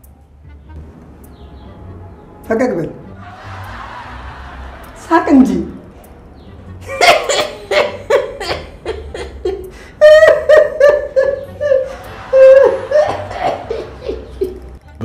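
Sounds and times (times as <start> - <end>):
man laughing hard: 6.8 - 14.7.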